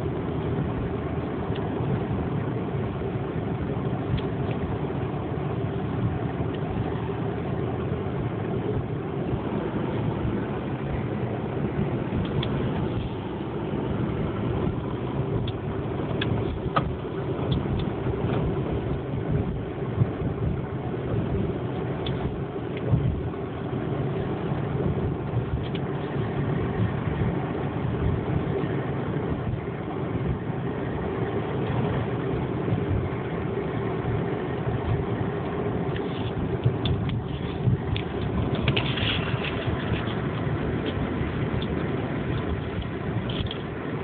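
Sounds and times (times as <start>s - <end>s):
car engine and tyre noise: 0.0s - 44.0s.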